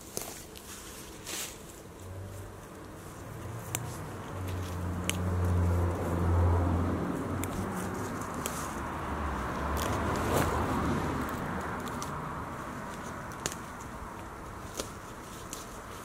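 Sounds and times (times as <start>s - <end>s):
grass being torn up rustling: 0.0s - 16.0s.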